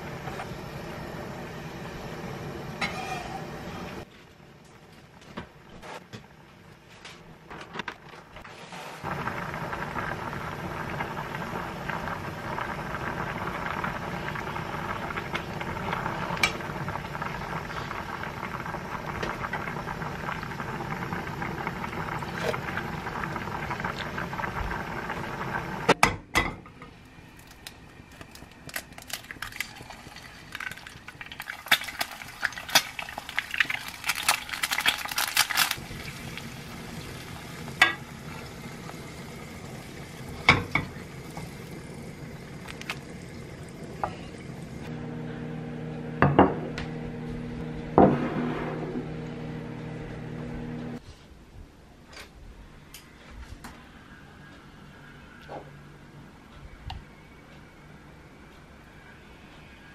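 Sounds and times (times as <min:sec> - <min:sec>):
spatula scraping frying pan: 0:02.8 - 0:03.5
stew bubbling: 0:08.5 - 0:25.9, 0:27.3 - 0:44.9.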